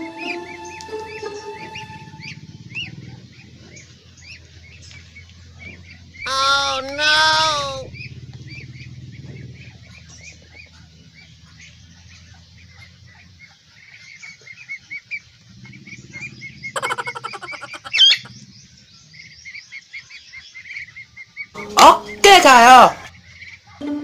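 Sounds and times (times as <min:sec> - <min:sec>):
ducklings peeping: 0:00.0 - 0:24.0
sharp rising call: 0:06.3 - 0:08.0.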